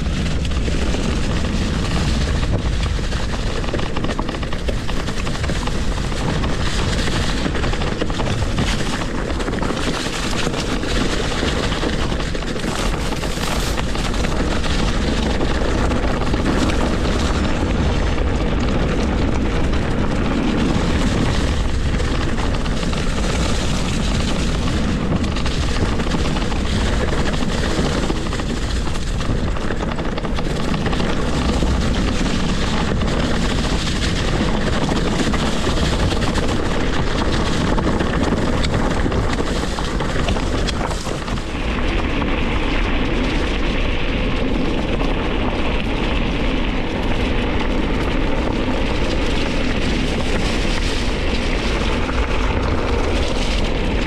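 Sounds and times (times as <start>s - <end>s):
mountain bike tyre rumble: 0.0s - 54.0s
wind buffeting microphone: 0.0s - 54.0s.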